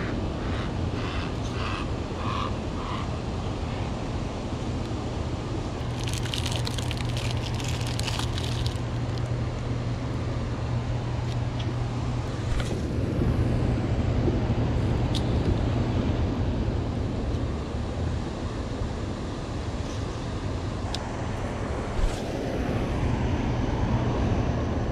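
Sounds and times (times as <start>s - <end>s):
low rumble of water: 2.1s - 19.5s
plastic packaging crinkling: 5.8s - 9.3s.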